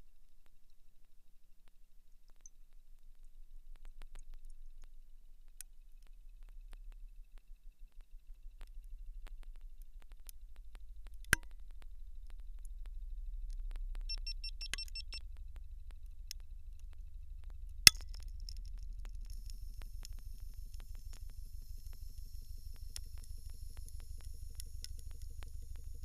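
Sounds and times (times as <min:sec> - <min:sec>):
high beeps: 0:14.1 - 0:15.2.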